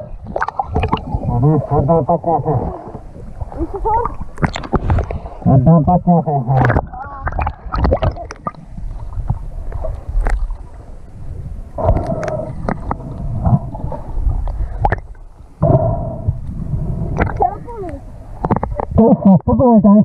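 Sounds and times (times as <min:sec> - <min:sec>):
muffled underwater gurgles: 0:00.0 - 0:10.5, 0:11.7 - 0:20.0
water splashing and gurgling: 0:00.0 - 0:19.4.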